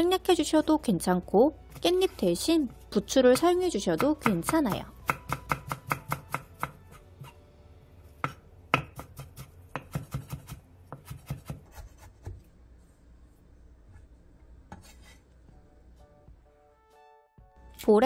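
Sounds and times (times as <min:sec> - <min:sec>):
knife chopping on wooden board: 0:04.0 - 0:07.4, 0:08.2 - 0:12.4.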